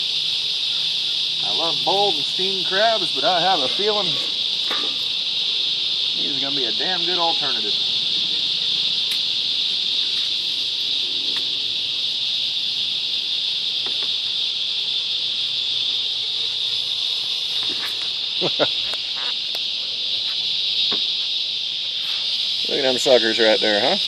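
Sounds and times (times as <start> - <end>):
crickets trilling: 0.0 - 24.0.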